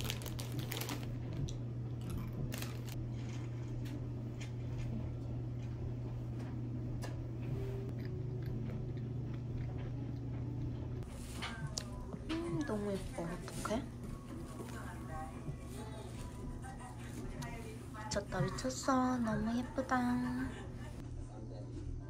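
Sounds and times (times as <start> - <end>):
plastic snack bag rustling: 0.0 - 1.4, 2.5 - 3.4
steady low hum: 0.0 - 22.0
person chewing jelly sweets: 7.9 - 12.7.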